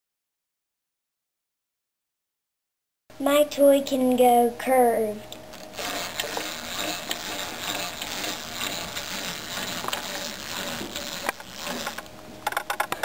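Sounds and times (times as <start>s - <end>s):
clockwork toy ratcheting buzz: 5.5s - 13.0s.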